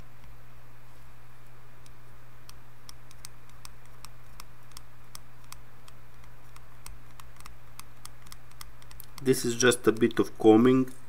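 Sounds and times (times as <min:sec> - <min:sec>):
steady low hum: 0:00.0 - 0:11.0
soldering iron tip clicking on pins: 0:01.8 - 0:10.3.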